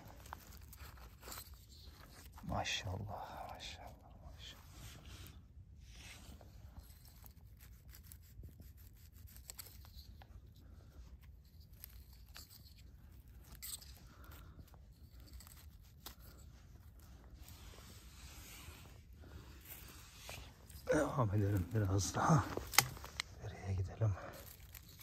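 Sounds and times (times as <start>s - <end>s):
pine needles rustling: 0.0s - 3.9s, 4.6s - 25.0s
knife cutting stems: 20.2s - 23.3s.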